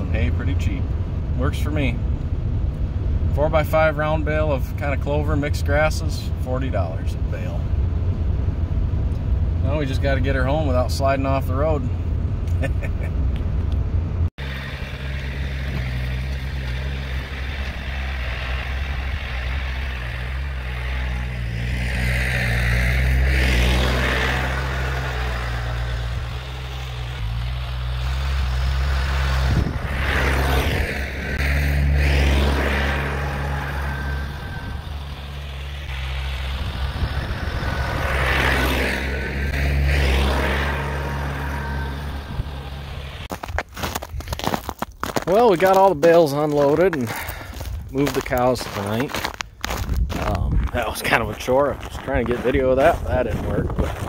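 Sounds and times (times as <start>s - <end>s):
tractor engine revving: 14.4s - 44.7s.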